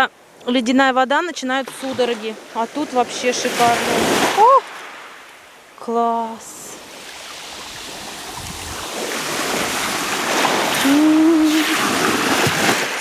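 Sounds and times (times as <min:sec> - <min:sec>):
surf washing on pebbly beach: 0:01.6 - 0:05.8, 0:06.6 - 0:13.0
woman humming: 0:10.8 - 0:11.9.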